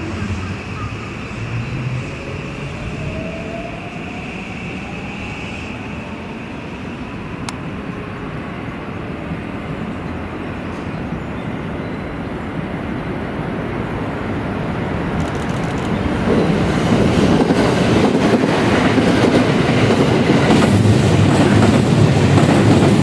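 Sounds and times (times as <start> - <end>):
train wheels rumbling: 15.0 - 23.0
sharp click: 15.2 - 16.0.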